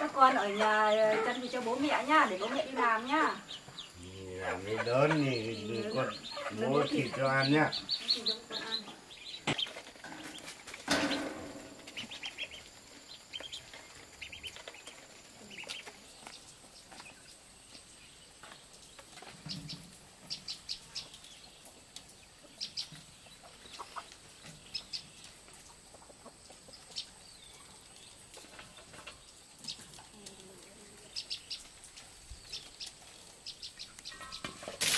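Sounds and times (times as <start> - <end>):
poultry calling: 0.0 - 16.1
high poultry chirps: 0.3 - 17.4, 19.4 - 28.1, 29.6 - 34.6.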